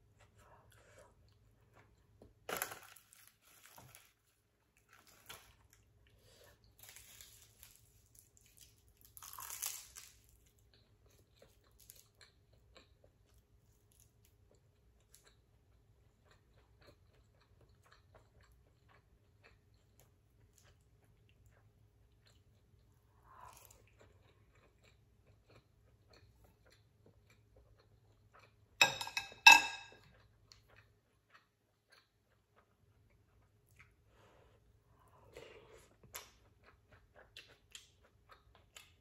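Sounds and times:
chewing and biting: 6.8s - 28.7s.

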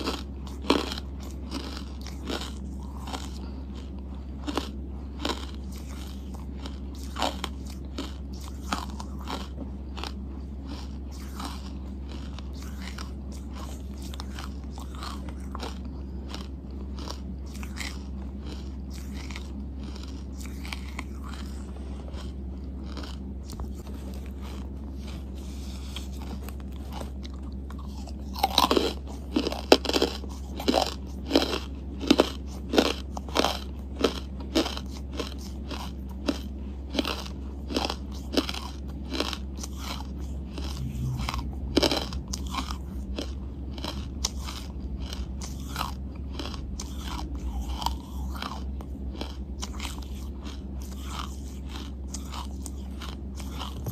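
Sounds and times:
charcoal being chewed: 0.0s - 53.9s.

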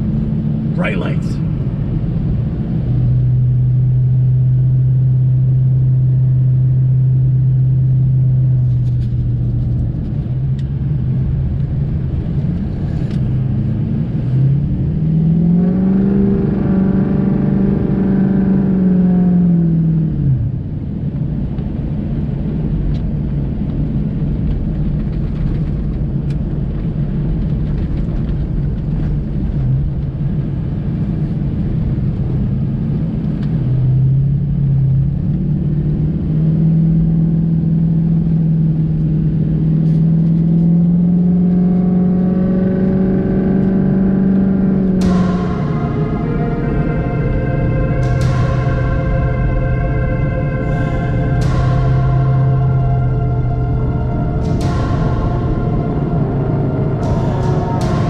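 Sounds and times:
rumble of driving on snowy road: 0.0s - 58.0s
truck engine running: 43.6s - 58.0s.

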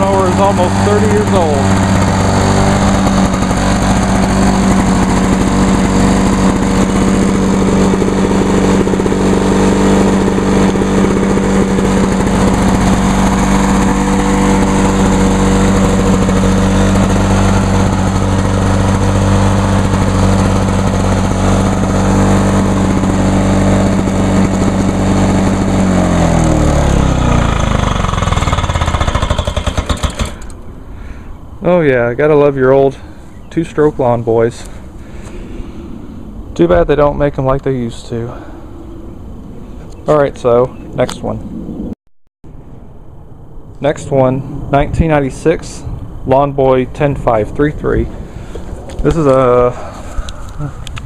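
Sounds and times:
lawn mower engine running: 0.0s - 35.8s, 47.0s - 51.0s.

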